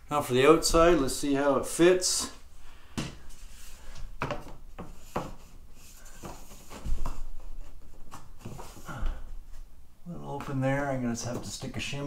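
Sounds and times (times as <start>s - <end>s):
wood rubbing: 3.0s - 9.7s.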